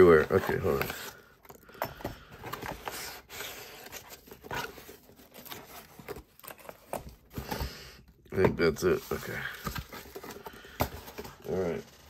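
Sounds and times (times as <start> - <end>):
foam packing peanuts rustling: 8.6 - 12.0.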